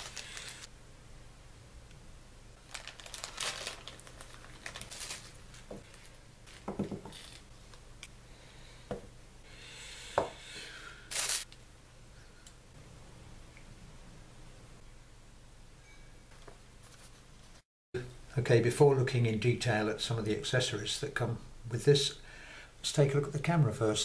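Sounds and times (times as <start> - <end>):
plastic packaging crinkling: 0.0 - 0.7, 2.6 - 7.5.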